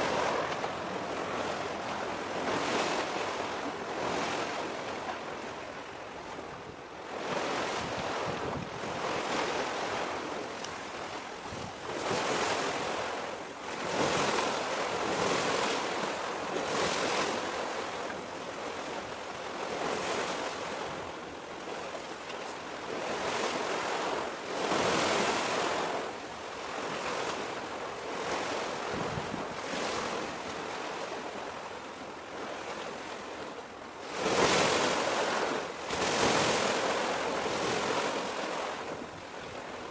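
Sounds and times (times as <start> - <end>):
sea waves washing in: 0.0 - 39.9
wind rushing over microphone: 6.4 - 10.4, 28.6 - 30.3.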